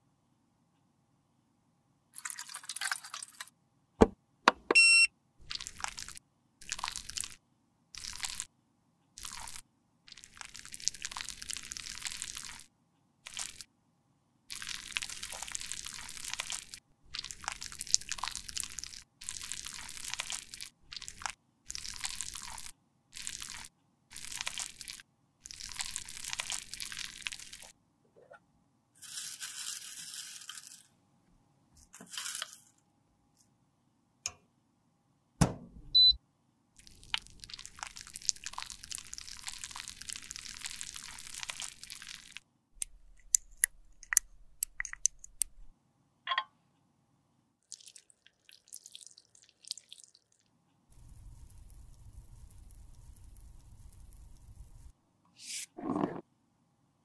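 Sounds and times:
spoon scooping wax pellets: 9.2 - 12.6, 29.0 - 30.9, 31.8 - 32.8, 36.8 - 45.7
heavy thump: 35.4 - 35.9.

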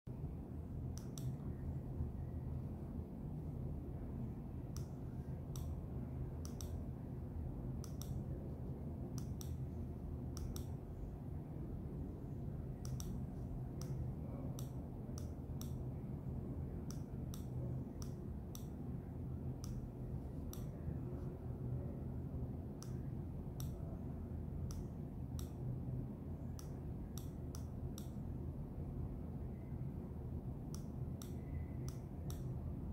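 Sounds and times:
steady low hum: 0.1 - 32.9
mouse clicking: 0.9 - 1.5, 4.7 - 5.8, 6.4 - 6.9, 7.8 - 8.3, 9.1 - 9.7, 10.3 - 10.8, 12.8 - 15.9, 16.8 - 18.8, 19.5 - 20.8, 22.8 - 23.9, 24.6 - 25.6, 26.6 - 28.3, 30.7 - 32.6.

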